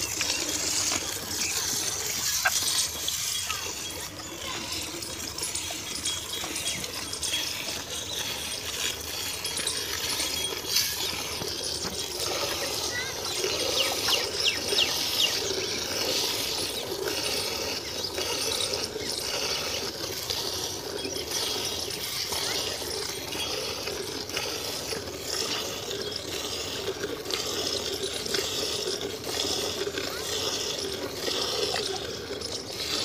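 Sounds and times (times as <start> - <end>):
milk squirting into steel bucket: 7.9 - 33.0.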